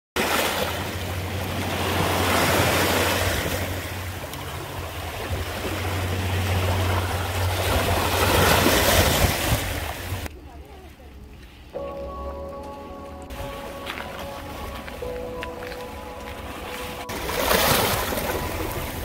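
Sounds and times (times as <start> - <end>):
waves washing over rocky shore: 0.2 - 10.3, 16.3 - 19.0
low rumble: 0.6 - 10.5.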